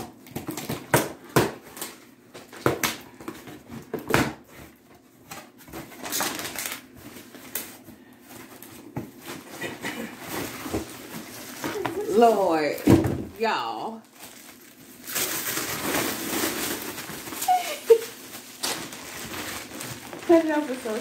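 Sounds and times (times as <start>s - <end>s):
cardboard scraping and rustling: 3.3s - 13.2s, 14.2s - 21.0s
cardboard box tearing open: 14.2s - 21.0s.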